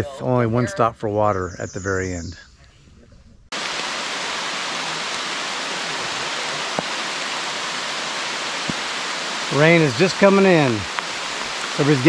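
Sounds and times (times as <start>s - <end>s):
rain falling on forest: 3.5s - 12.0s
raindrop ticks: 3.6s - 12.0s.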